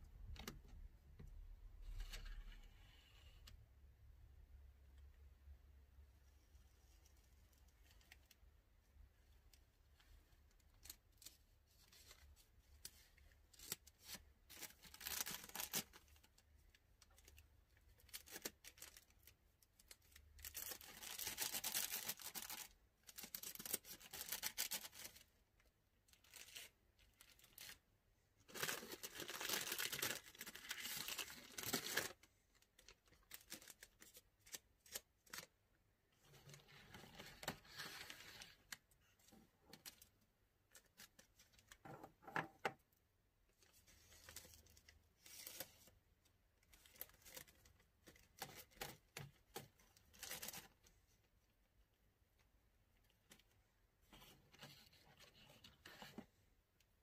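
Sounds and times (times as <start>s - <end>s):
plastic bags crinkling: 28.5s - 32.2s.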